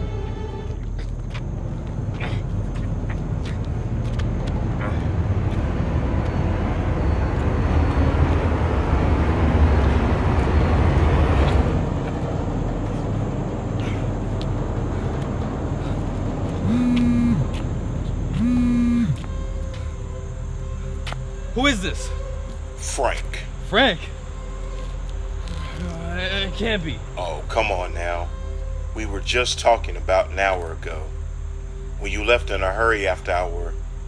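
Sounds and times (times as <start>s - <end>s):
low rumbling noise: 0.0s - 22.8s
mobile phone buzzing: 16.6s - 17.5s, 18.4s - 19.2s.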